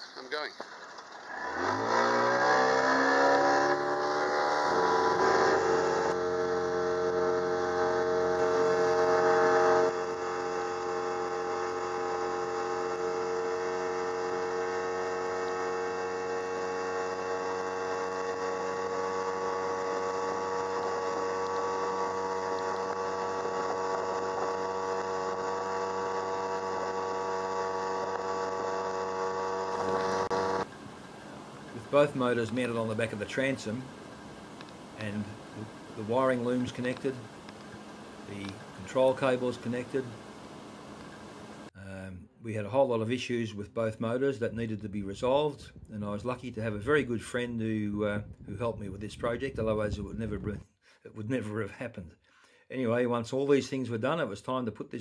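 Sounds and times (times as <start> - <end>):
outboard motor high-revving drone: 1.2 - 41.7.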